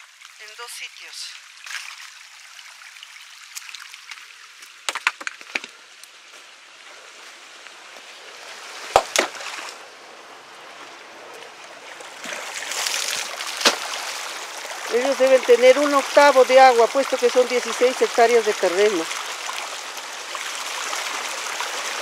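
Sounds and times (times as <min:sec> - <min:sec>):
water running and sloshing: 0:01.4 - 0:04.9, 0:06.4 - 0:22.0
sharp knocks: 0:08.9 - 0:09.4
earth clods thudding: 0:13.5 - 0:14.0.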